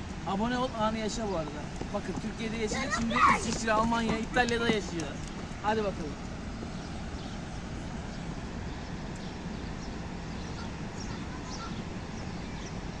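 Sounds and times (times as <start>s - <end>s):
bird calls: 0.6s - 13.0s
waterfall roaring: 0.8s - 8.6s.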